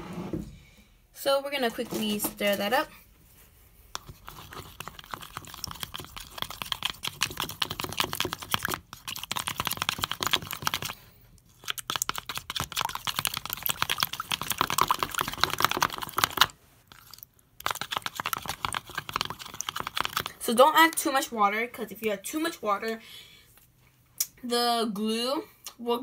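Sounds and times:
utensil scraping plastic bowl: 1.6 - 2.9, 4.0 - 11.0, 17.1 - 21.0.

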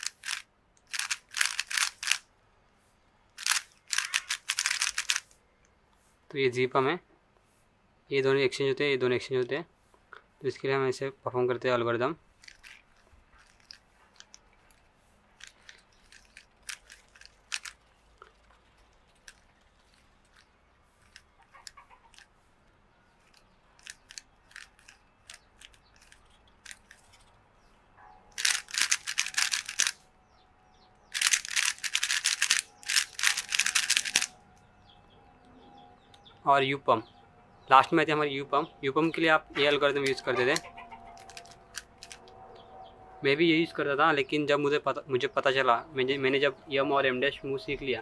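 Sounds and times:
puzzle cube turning clicks: 0.0 - 2.2, 3.4 - 5.4, 12.4 - 14.8, 15.4 - 22.3, 23.2 - 27.3, 28.4 - 30.0, 31.1 - 34.3, 40.0 - 42.2
rapid loud cube clacking: 0.0 - 2.2, 3.4 - 5.4, 12.4 - 14.8, 15.4 - 22.3, 23.2 - 27.1, 28.3 - 30.0, 31.1 - 34.4, 41.2 - 42.2.

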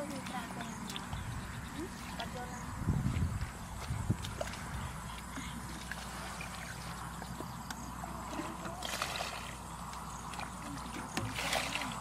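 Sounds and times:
muddy water splashing: 0.0 - 12.0.

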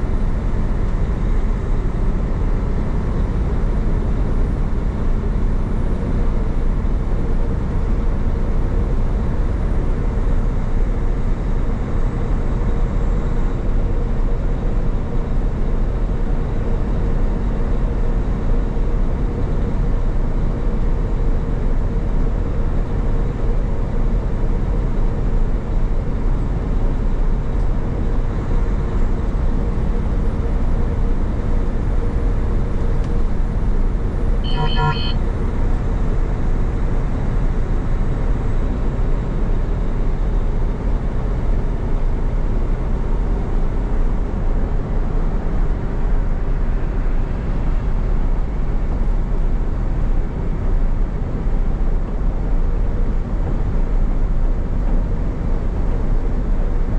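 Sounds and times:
truck engine and road noise: 0.0 - 56.9
short beep: 34.4 - 35.2.

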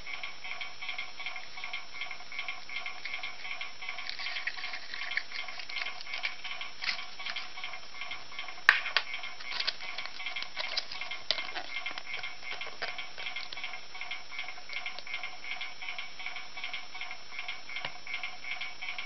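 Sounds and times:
plastic capsule clicking: 8.7 - 13.7.

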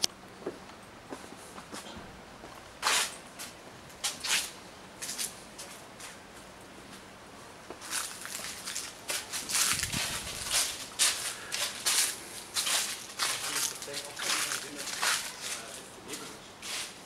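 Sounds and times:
footsteps crunching dry leaves: 7.8 - 17.0.

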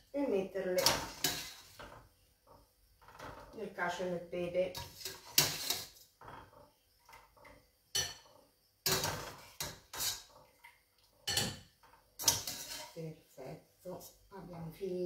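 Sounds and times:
metal utensil clinking on pot: 4.7 - 6.5, 7.9 - 10.3, 11.2 - 13.0.

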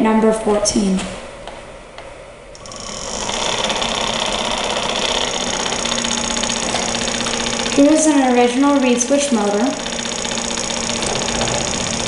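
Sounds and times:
electric motor buzzing rattle: 2.6 - 12.0.

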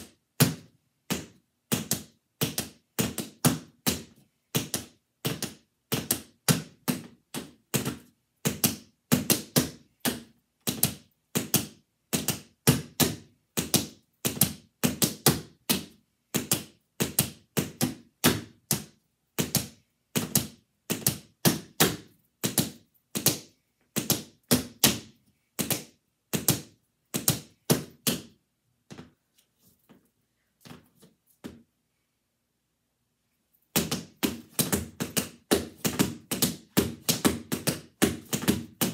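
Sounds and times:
tap shoes striking floor mat: 33.8 - 38.9.

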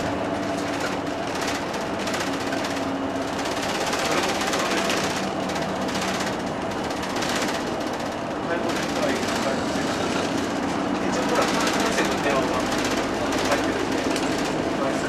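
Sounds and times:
bus engine and road noise: 0.0 - 15.0.

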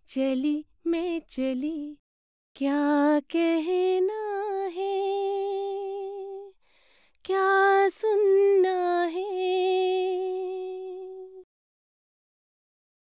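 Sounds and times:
woman singing unaccompanied: 0.0 - 2.0, 2.6 - 6.6, 7.2 - 11.5.

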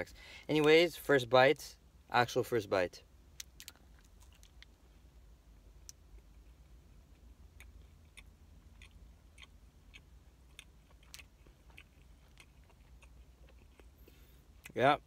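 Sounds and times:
person chewing crunchy food: 5.9 - 14.8.

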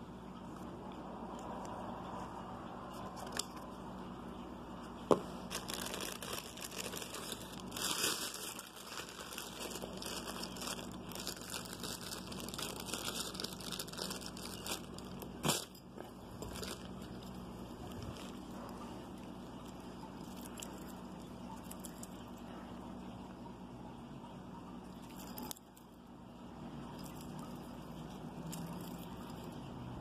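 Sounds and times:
plastic packaging crinkling: 5.0 - 22.2.

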